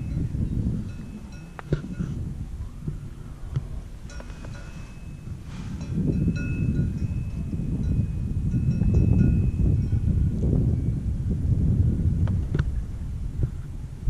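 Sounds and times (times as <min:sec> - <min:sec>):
faint bell-like ringing: 0:00.0 - 0:02.8, 0:04.0 - 0:10.2
wind noise on microphone: 0:00.0 - 0:14.0
sharp metallic clinks: 0:04.1 - 0:10.0.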